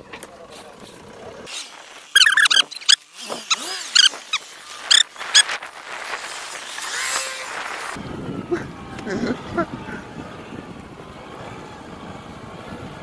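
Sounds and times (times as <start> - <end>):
dog yelping: 2.2 - 5.5.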